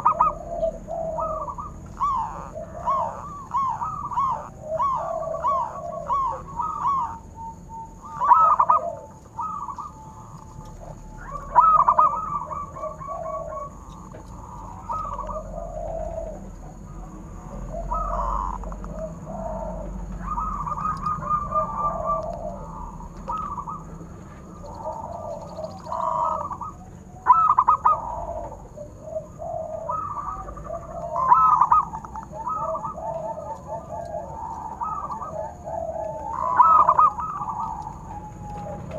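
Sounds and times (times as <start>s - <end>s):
doves cooing in trilled notes: 0.0s - 38.9s.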